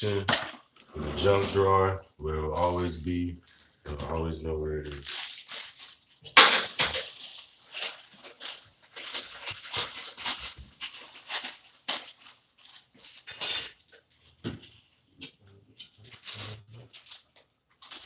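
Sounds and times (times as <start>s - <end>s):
kitchen items clinking and clattering: 5.0s - 18.0s.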